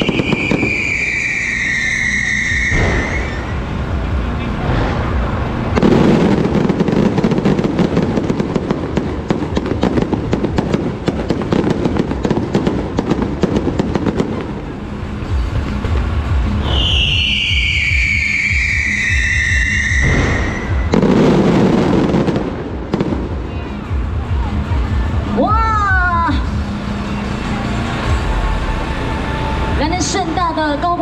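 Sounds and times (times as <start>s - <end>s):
firework whistle falling in pitch: 0.0s - 3.6s, 16.6s - 21.0s
loud firework burst: 0.0s - 23.6s
fireworks crackling pops and bangs: 0.0s - 28.2s.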